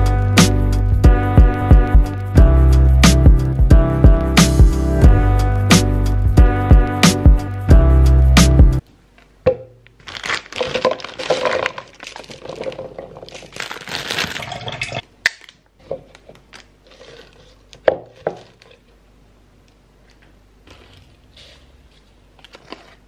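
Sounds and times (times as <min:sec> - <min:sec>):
rustling of bags and peel: 0:10.0 - 0:15.0, 0:16.0 - 0:18.9, 0:20.0 - 0:23.0
food pieces knocking into cup: 0:10.4 - 0:13.5.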